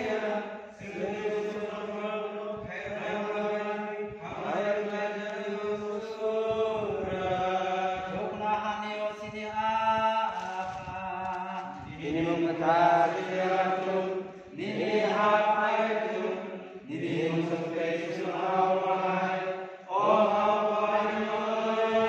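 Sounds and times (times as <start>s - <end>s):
man chanting a prayer: 0.0s - 16.3s.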